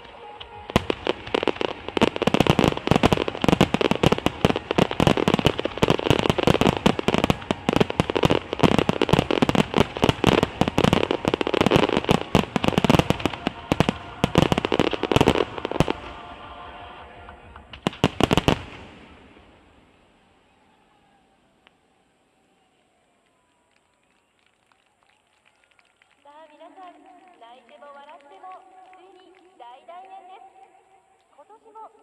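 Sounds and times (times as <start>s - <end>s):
fireworks bursting: 0.0s - 20.5s.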